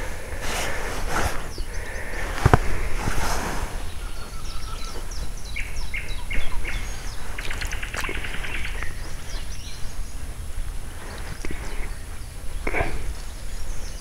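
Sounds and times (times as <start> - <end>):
birds chirping and trilling: 0.0 - 14.0
steady low rumble: 0.0 - 14.0.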